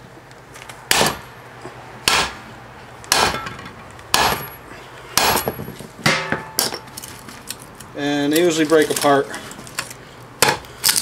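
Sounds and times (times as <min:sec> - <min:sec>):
hammer striking steel: 0:00.9 - 0:01.3, 0:02.0 - 0:02.4, 0:03.1 - 0:04.6, 0:05.2 - 0:06.9.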